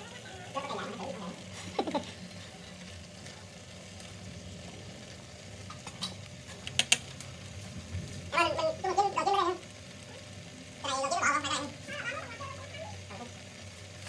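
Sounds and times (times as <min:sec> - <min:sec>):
sharp clicks against pan: 0:05.8 - 0:07.3.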